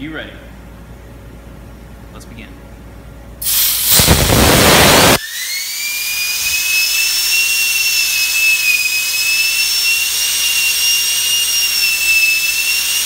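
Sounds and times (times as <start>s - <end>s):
compressed air hissing: 3.4s - 5.2s
high turbine whine: 3.4s - 13.0s.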